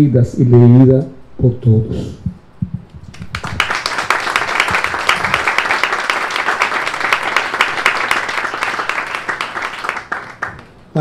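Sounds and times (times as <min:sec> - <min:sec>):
people applauding: 0:03.1 - 0:10.8.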